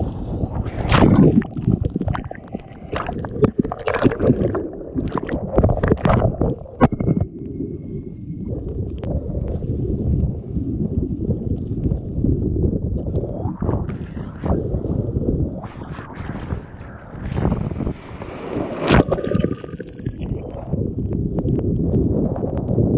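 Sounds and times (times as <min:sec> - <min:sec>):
water rushing along hull: 0:00.6 - 0:07.0, 0:15.7 - 0:20.8
water splashing on kayak hull: 0:00.7 - 0:06.8
surf crashing: 0:15.7 - 0:20.5.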